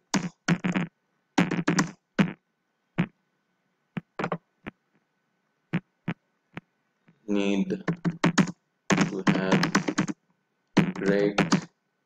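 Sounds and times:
typing on keyboard: 0:01.4 - 0:02.0, 0:07.8 - 0:10.2, 0:10.8 - 0:11.7.

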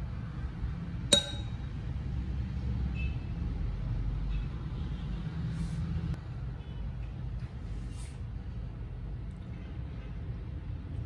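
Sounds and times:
cup clinking against glass: 0:01.1 - 0:01.6.

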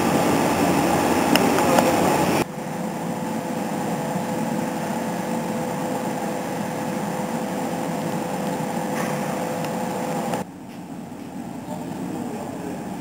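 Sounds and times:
faint constant whine: 0:00.0 - 0:13.0
steady mechanical hum: 0:00.0 - 0:13.0.

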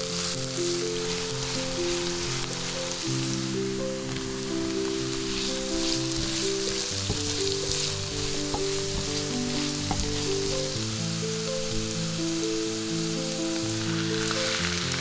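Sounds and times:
background music with held notes: 0:00.0 - 0:15.0
vegetables sizzling in oil: 0:00.0 - 0:15.0
wooden spatula tapping pan: 0:03.9 - 0:12.8.

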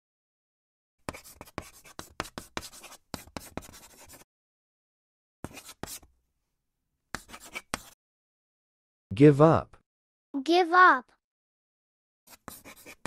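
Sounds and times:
marker scratching: 0:01.0 - 0:04.3, 0:05.4 - 0:06.1, 0:07.1 - 0:08.0, 0:12.3 - 0:13.0.

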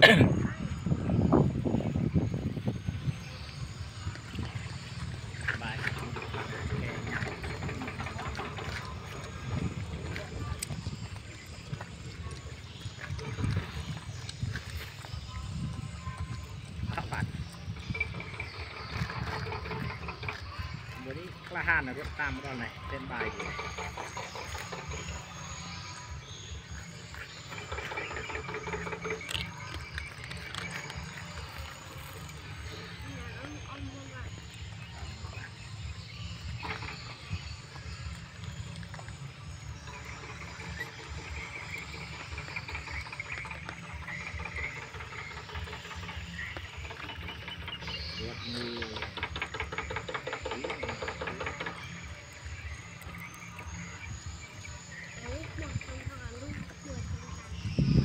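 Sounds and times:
low steady rumble: 0:00.0 - 0:58.0
low rumble: 0:51.7 - 0:58.0.

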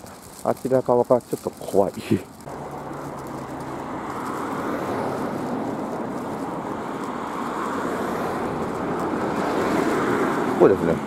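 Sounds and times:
cars passing close by: 0:02.2 - 0:11.0.

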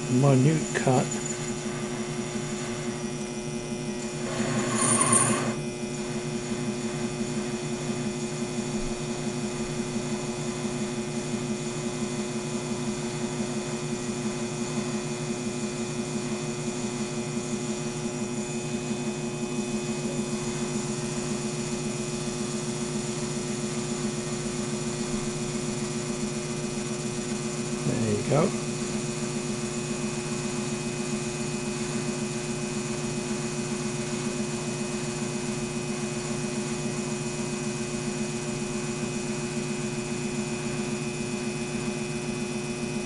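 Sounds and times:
lathe running: 0:00.0 - 0:10.9.

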